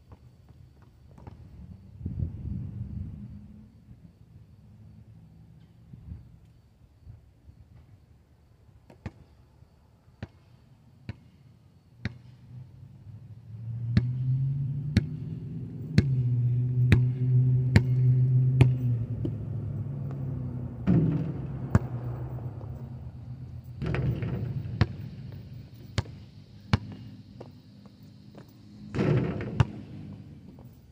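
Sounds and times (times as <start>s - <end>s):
basketball bouncing on asphalt: 0.0s - 1.5s, 8.8s - 9.4s, 10.2s - 11.4s, 12.0s - 12.6s, 13.9s - 14.2s, 14.9s - 15.3s, 15.9s - 30.7s
vehicle engine hum: 12.4s - 30.9s.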